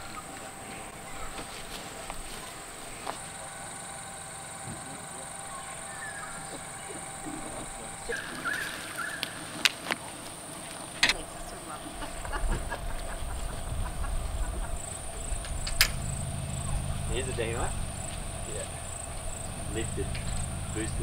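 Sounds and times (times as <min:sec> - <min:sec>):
high-pitched insect drone: 0:00.0 - 0:09.6, 0:10.6 - 0:21.0
bird chirps: 0:02.4 - 0:09.6, 0:13.8 - 0:21.0.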